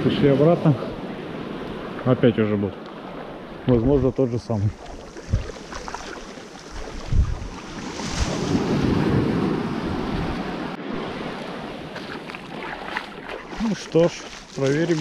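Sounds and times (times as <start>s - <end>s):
small waves breaking on shore: 0.0s - 15.0s
wind thumps on microphone: 4.8s - 11.1s.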